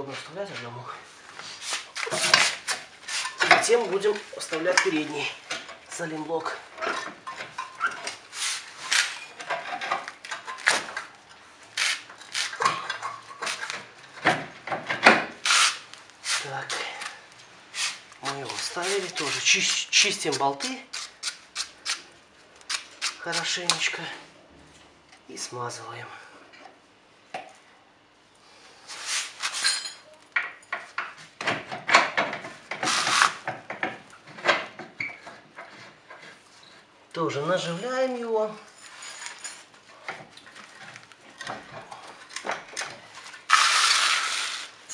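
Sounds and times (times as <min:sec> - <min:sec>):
metal clinking and scraping: 0:29.5 - 0:30.8, 0:37.6 - 0:39.8
metal tools clinking: 0:29.5 - 0:30.8.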